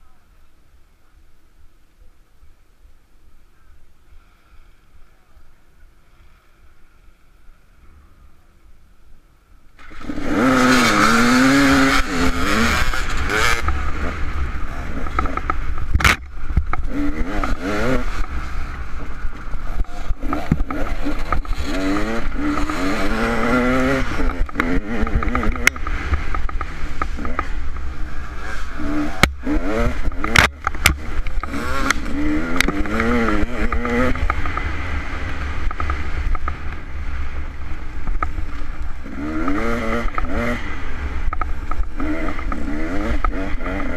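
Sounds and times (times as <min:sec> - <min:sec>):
dirt bike engine revving: 0:09.8 - 0:43.9.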